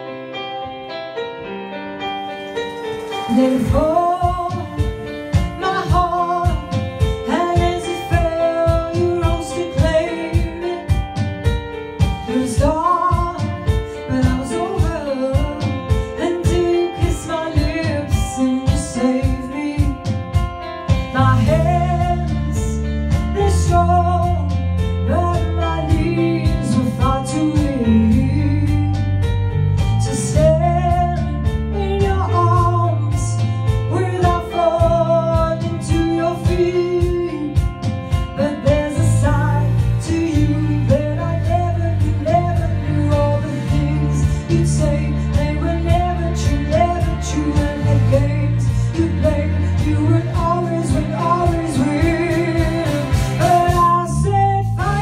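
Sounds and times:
backing track with steady beat: 2.0 - 55.0
woman singing pop ballad: 2.5 - 55.0
heavy bass line: 19.8 - 55.0.

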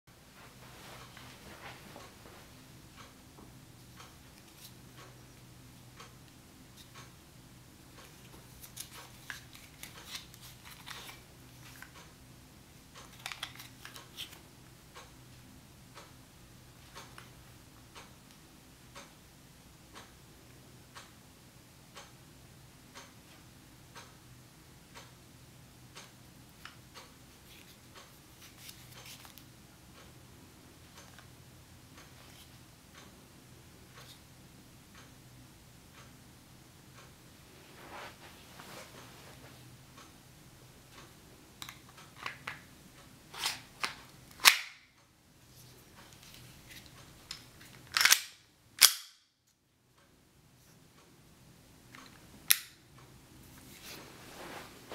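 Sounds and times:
low steady hum: 0.1 - 54.9
clock ticking: 2.0 - 9.2, 14.8 - 28.2, 29.8 - 37.3
airsoft pistol clicks: 48.0 - 49.2.

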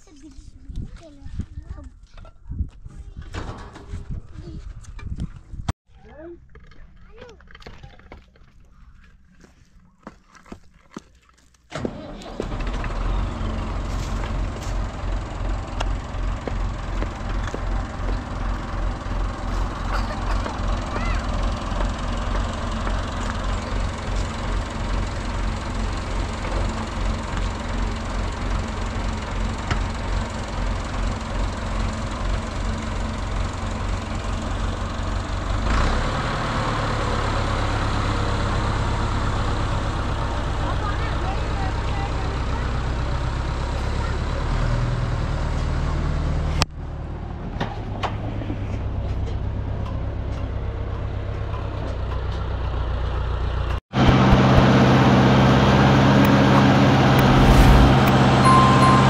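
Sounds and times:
tractor engine running: 11.7 - 44.2.

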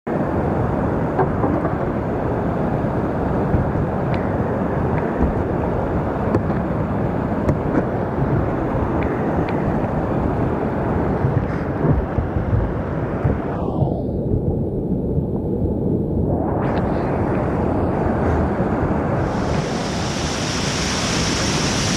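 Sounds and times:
rapids and waterfall rushing: 16.3 - 21.9.

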